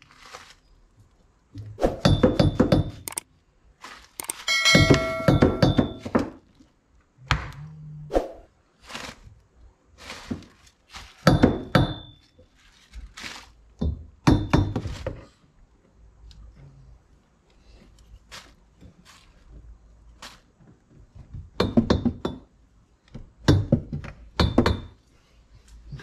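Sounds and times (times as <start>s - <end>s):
metallic clink and ring: 4.2s - 6.0s
hammer knocking metal brace: 4.5s - 6.2s.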